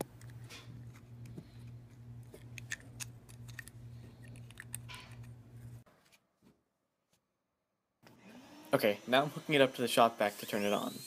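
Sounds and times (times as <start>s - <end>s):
small clicks and light scraping: 0.0s - 5.8s
steady low hum: 0.0s - 5.9s.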